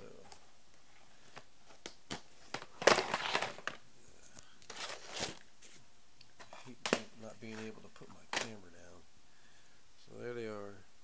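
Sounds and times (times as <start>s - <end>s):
plastic crinkling rustle: 2.4s - 3.8s, 4.4s - 5.8s.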